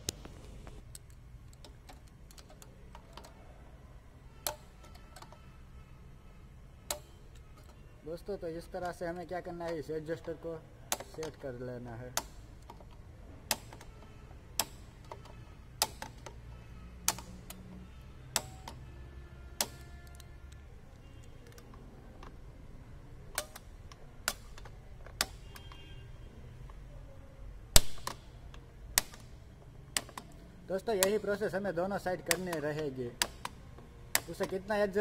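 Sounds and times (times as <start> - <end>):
brake adjuster metallic clicks: 4.4 - 5.4, 6.8 - 7.8, 8.6 - 16.4, 17.0 - 18.8, 19.6 - 22.4, 23.3 - 25.9, 27.7 - 30.4, 32.2 - 35.0.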